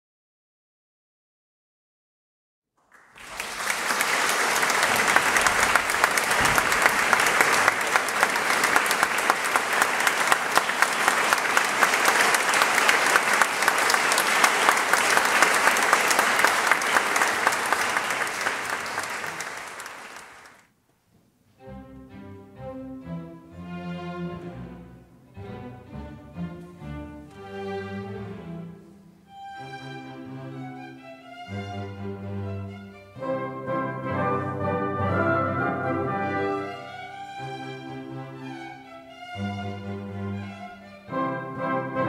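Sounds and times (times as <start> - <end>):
audience applauding: 2.8 - 20.7.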